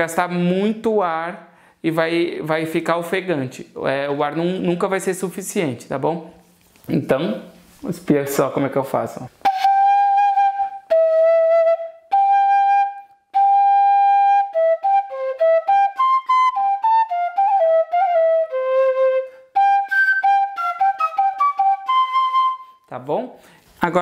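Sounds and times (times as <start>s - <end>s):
fife melody: 9.4s - 22.9s.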